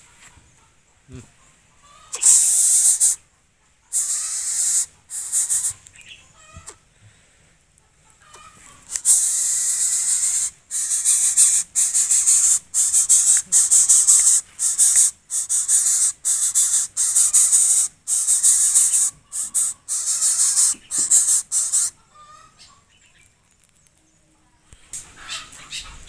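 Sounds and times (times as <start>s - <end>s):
bird hissing in rapid bursts: 2.1s - 3.2s, 3.9s - 5.8s, 8.9s - 21.9s.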